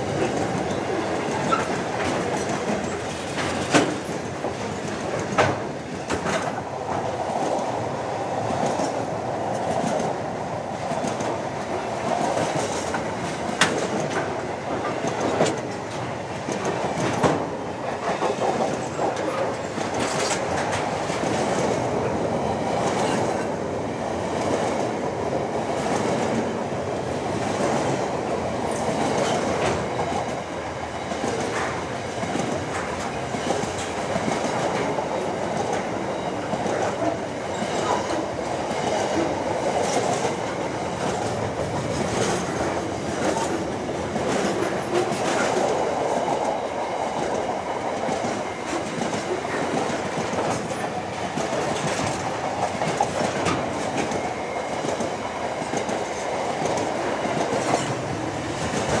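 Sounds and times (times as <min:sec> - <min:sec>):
freight train wheels rumbling: 0:00.0 - 0:59.0
wheels clicking over rail joints: 0:31.0 - 0:59.0.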